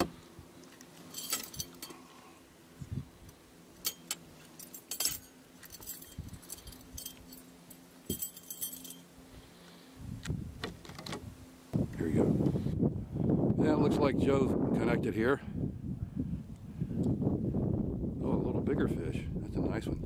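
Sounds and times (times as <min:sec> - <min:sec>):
fishing tackle clinking: 0:01.0 - 0:02.1, 0:03.8 - 0:09.1.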